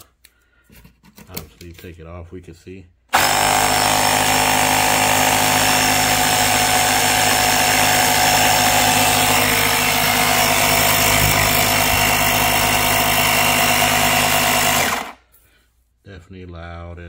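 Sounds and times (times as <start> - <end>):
air compressor running: 3.1 - 15.3.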